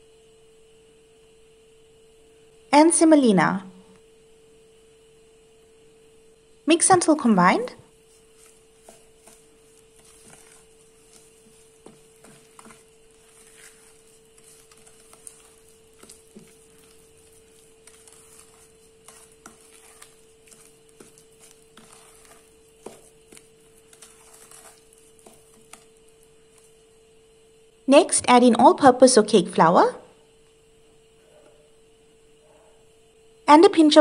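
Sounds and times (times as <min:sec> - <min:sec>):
faint hum: 0:00.0 - 0:34.0
spoon stirring in glass bowl: 0:07.9 - 0:26.9.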